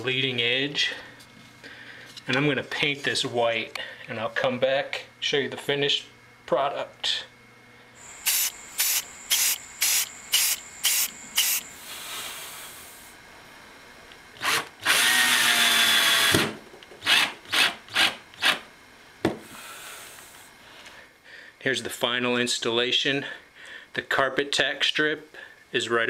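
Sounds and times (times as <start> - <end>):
cordless drill driving screws: 8.0 - 11.7, 14.4 - 18.6.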